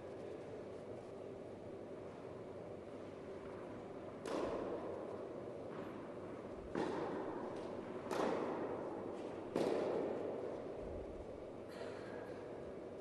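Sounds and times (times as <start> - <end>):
tennis ball struck by rackets: 6.7 - 10.5.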